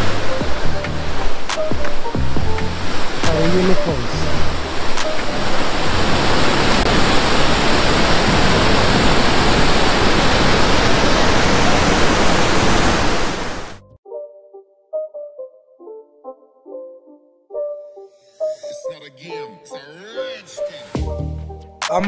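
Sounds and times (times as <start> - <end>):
water rushing over rocks: 0.0 - 13.8.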